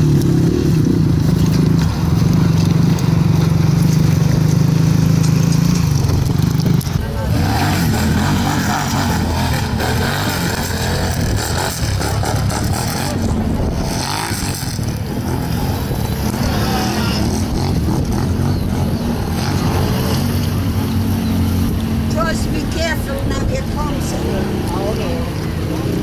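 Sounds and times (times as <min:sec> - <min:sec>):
atv engine revving: 0:00.0 - 0:26.0.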